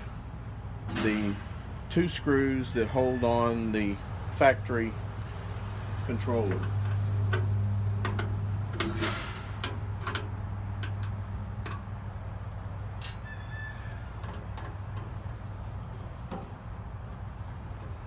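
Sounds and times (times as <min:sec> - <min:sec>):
steady low hum: 0:00.0 - 0:02.9, 0:03.5 - 0:18.0.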